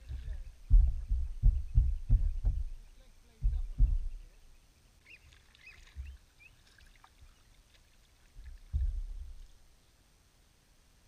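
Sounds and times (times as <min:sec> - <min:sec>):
faint high bird chirps: 0:00.0 - 0:07.6.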